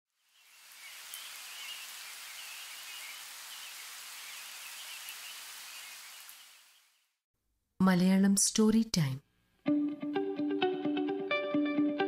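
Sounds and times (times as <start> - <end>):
birds chirping faintly: 0.1 - 7.2
rain on foliage: 0.1 - 7.2.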